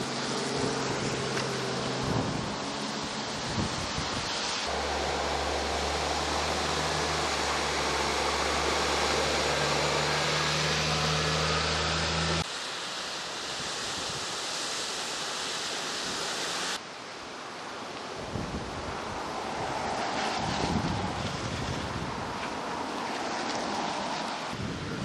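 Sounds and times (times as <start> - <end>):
truck driving through floodwater: 0.0 - 12.5
rushing water and wind: 0.0 - 25.0
truck engine hum: 4.7 - 12.4.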